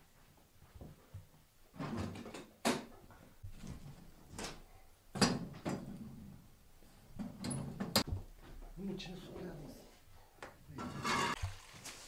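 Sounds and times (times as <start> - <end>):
wood pushed into fire: 10.8 - 11.6.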